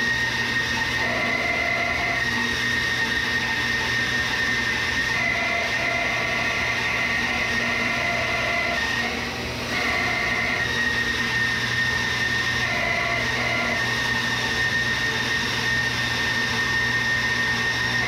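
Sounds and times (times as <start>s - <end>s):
bandsaw cutting wood: 0.0s - 18.0s
dust collector running: 0.0s - 18.0s.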